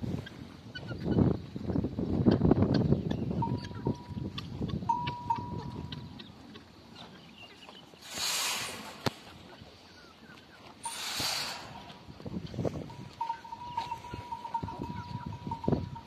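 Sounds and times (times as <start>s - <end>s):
faint steady ringing tone: 3.4s - 6.1s, 12.8s - 16.0s
short hiss: 8.0s - 9.2s, 10.9s - 11.8s.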